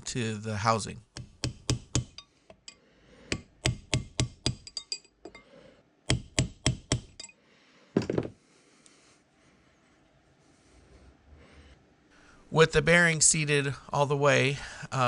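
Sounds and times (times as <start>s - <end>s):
hammer tapping metal ringing: 1.2s - 5.4s, 6.1s - 7.4s.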